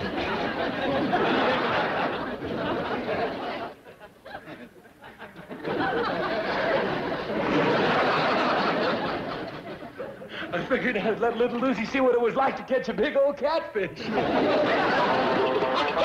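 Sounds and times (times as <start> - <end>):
audience laughter: 0.0 - 10.7, 14.0 - 16.0.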